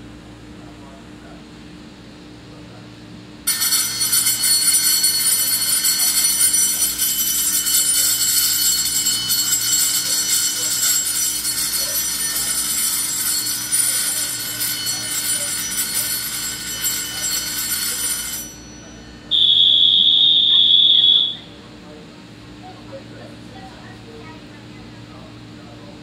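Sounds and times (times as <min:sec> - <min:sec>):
platform bell ringing: 0:03.5 - 0:21.6.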